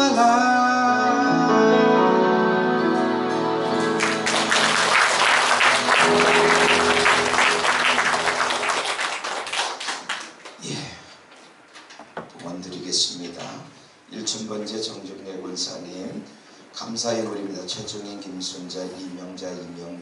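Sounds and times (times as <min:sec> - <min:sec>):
song accompaniment notes: 0:00.3 - 0:09.2
audience applauding: 0:03.7 - 0:10.6.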